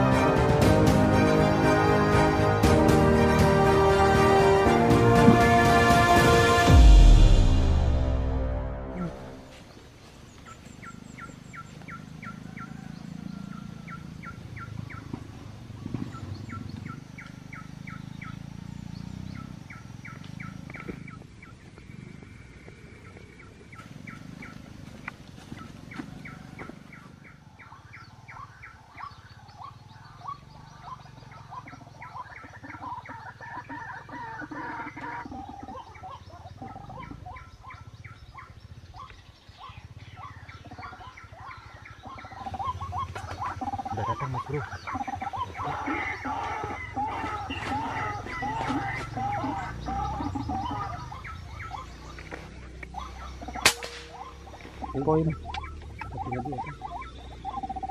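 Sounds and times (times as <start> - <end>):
waterhen calling: 27.2 - 52.3, 52.9 - 57.9.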